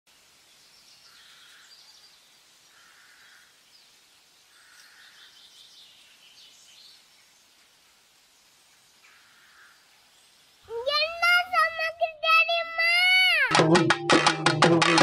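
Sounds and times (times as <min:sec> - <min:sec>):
faint bird calls: 0:01.0 - 0:02.1, 0:02.7 - 0:03.6, 0:04.5 - 0:05.7, 0:09.0 - 0:11.6.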